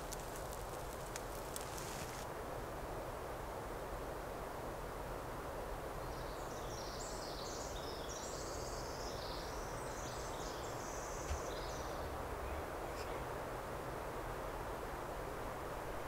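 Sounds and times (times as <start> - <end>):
steady background hiss: 0.0 - 16.0
songbird singing: 6.0 - 13.4.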